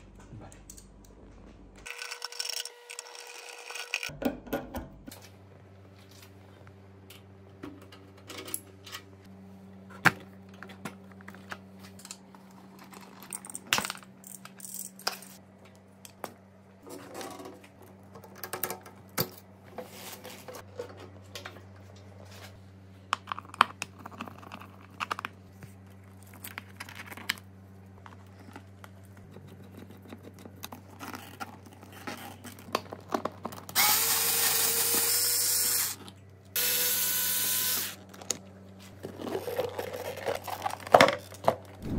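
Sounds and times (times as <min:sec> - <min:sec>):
low steady hum: 0:04.1 - 0:41.9
cordless drill driving screw: 0:33.8 - 0:36.0, 0:36.6 - 0:38.0.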